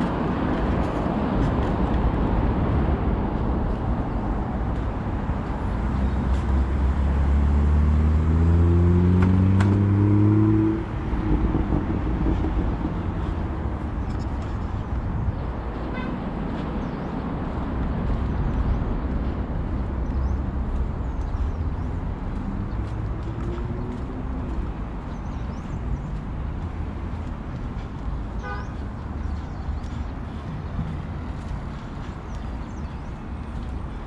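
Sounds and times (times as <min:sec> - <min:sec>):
vehicle engine accelerating: 0:00.0 - 0:14.8, 0:19.0 - 0:28.2
road traffic noise: 0:00.0 - 0:34.0.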